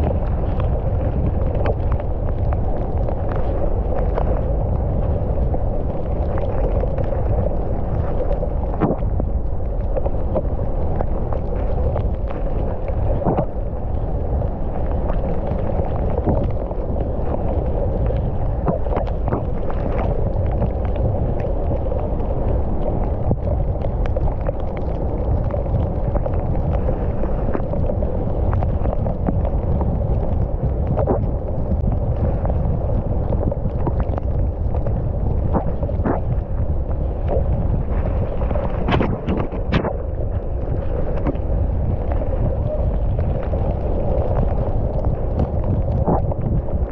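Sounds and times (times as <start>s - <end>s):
bike tyres rumbling on dirt: 0.0s - 46.9s
wind on microphone: 0.0s - 46.9s.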